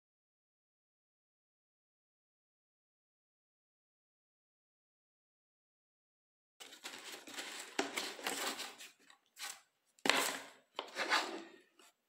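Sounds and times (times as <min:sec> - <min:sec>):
cardboard sleeve scraping plastic: 0:06.6 - 0:12.0.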